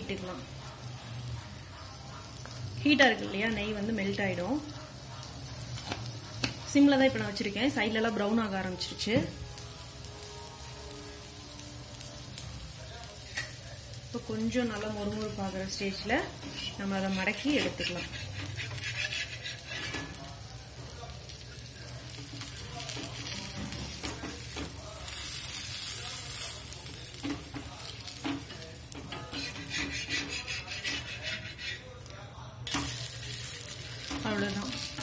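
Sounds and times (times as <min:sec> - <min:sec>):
dosa sizzling on pan: 0:00.0 - 0:35.0
steel spatula scraping: 0:16.3 - 0:20.2, 0:29.0 - 0:32.0.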